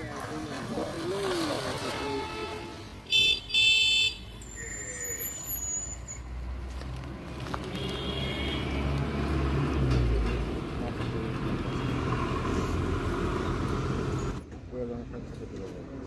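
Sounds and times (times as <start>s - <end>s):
vehicle engine rumbling: 4.2s - 15.9s.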